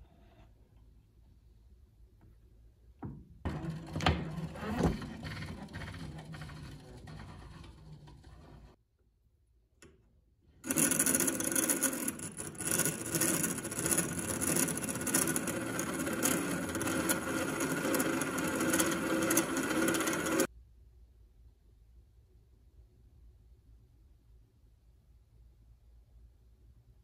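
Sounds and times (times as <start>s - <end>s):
grinding wheel turning quietly: 3.4s - 8.8s, 10.5s - 20.5s
steel grinding on grindstone: 10.6s - 20.5s.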